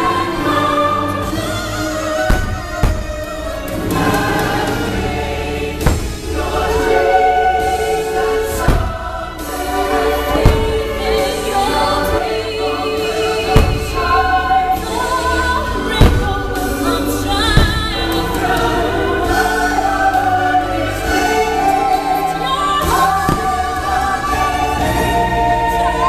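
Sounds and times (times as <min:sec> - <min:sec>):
choral singing with orchestra: 0:00.0 - 0:26.0
firework bangs: 0:02.1 - 0:11.4, 0:13.4 - 0:14.7, 0:15.7 - 0:18.2.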